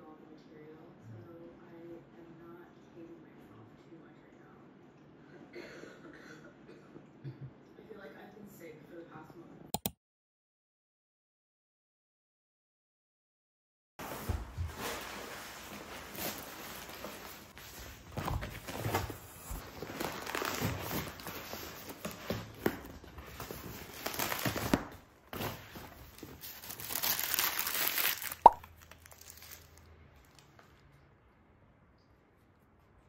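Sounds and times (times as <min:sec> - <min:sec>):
packing paper rustling: 0:14.0 - 0:30.8.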